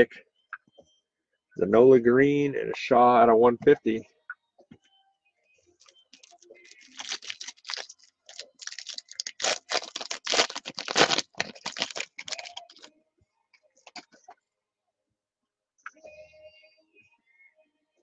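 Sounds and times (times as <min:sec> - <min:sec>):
wrapper being torn and crinkled: 0:06.2 - 0:12.9.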